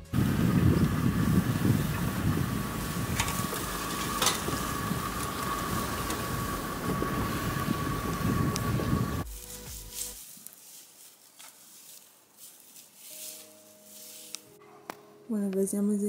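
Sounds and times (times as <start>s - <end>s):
thin steady whine: 0.0s - 10.2s
vehicle engine rumbling: 0.0s - 10.2s.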